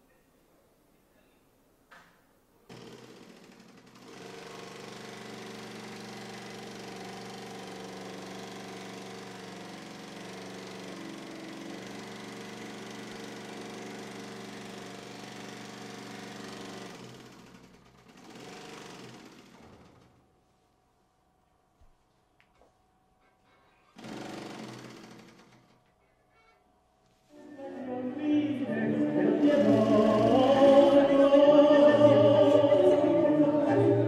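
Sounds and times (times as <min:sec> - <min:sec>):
industrial sewing machine running: 0:02.7 - 0:20.2, 0:23.9 - 0:25.9, 0:29.0 - 0:34.0.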